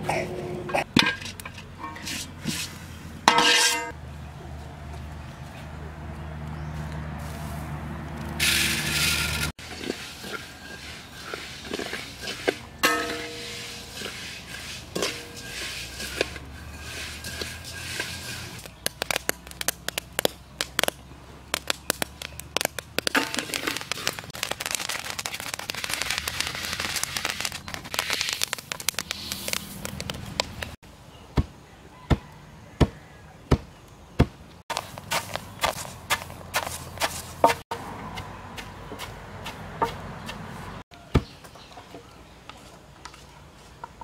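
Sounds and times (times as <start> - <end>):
rice crackling in a dry wok: 7.2 - 30.8, 34.7 - 37.6
pestle pounding in wooden mortar: 34.2 - 40.5.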